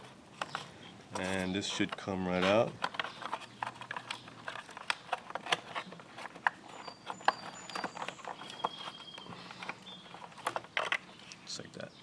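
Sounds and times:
faint high squeaks: 0:05.5 - 0:11.4.

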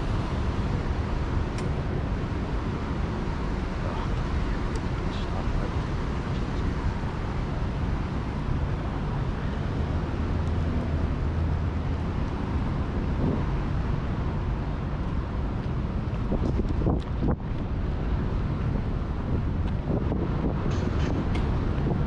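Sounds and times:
distant traffic: 0:00.0 - 0:22.0
wind on microphone: 0:00.0 - 0:22.0.

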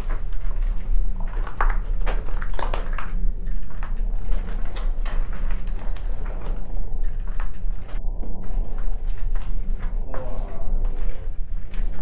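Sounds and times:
footsteps on gritty floor: 0:00.0 - 0:12.0
low rumble: 0:00.0 - 0:12.0.

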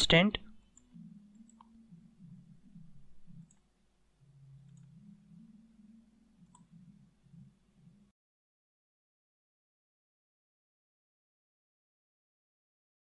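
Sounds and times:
low hum: 0:00.4 - 0:08.2
computer mouse clicks: 0:00.7 - 0:01.8, 0:03.3 - 0:03.7, 0:04.6 - 0:05.0, 0:06.4 - 0:06.8.

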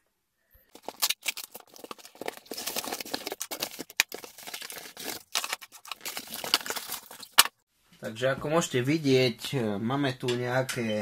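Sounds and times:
cardboard box being opened: 0:00.7 - 0:07.5
plastic bags rustling: 0:00.7 - 0:07.6.

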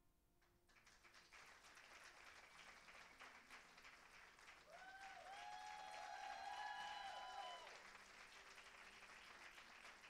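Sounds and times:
audience applauding: 0:00.7 - 0:10.0.

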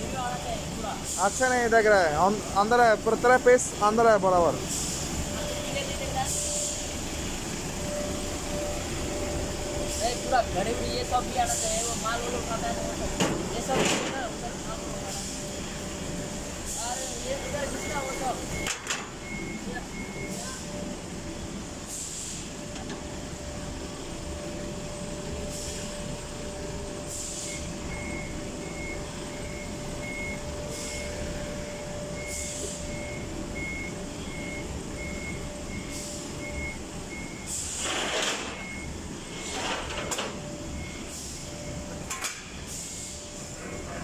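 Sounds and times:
reversing alarm beeping: 0:00.1 - 0:44.0
loud hiss bursts: 0:37.5 - 0:38.4.

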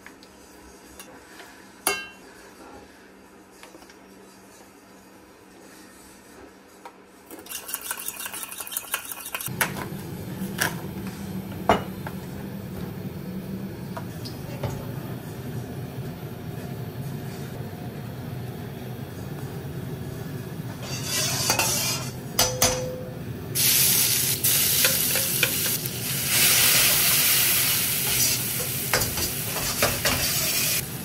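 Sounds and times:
utensils and cookware clacking: 0:07.3 - 0:09.8, 0:20.7 - 0:23.1, 0:24.6 - 0:25.9, 0:28.0 - 0:30.8.

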